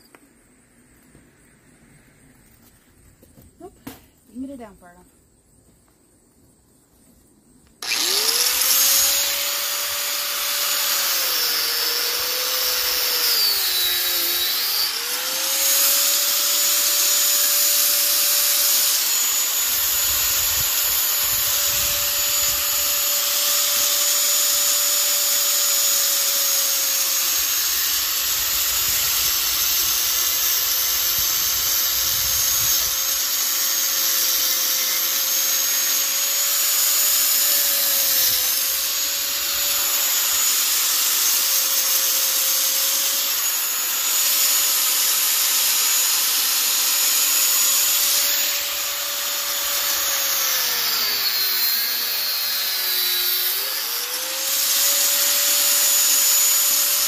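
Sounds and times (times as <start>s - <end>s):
angle grinder cutting metal: 7.8s - 57.0s.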